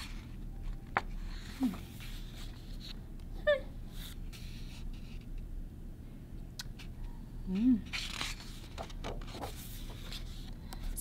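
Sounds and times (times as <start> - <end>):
book page turning: 0.0 - 3.0, 7.9 - 10.6.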